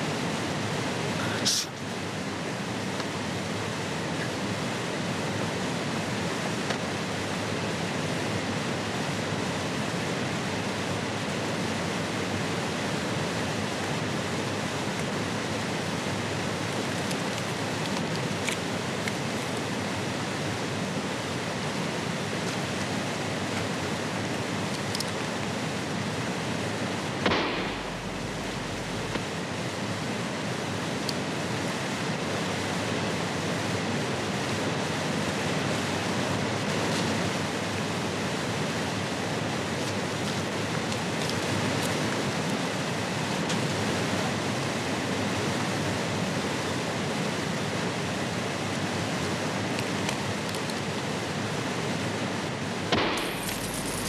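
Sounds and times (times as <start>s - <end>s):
river water rushing: 0.0s - 54.0s
sharp knock: 27.2s - 29.3s.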